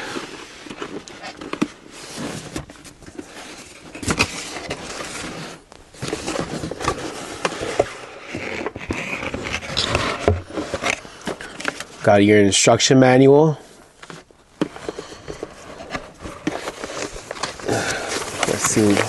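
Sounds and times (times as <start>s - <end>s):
cardboard scraping and rustling: 0.0s - 12.1s, 14.0s - 19.0s.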